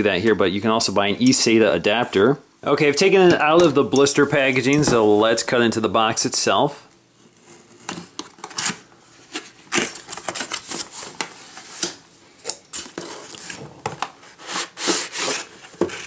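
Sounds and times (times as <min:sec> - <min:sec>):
cardboard box scrapes and rustles: 0:14.2 - 0:16.0.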